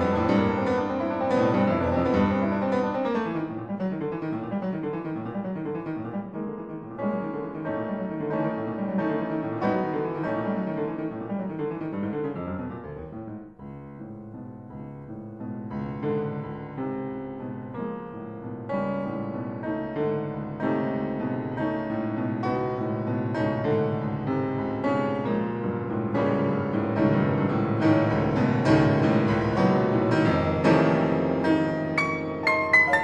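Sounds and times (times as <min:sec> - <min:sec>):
piano playing struck chords: 0:28.0 - 0:33.0.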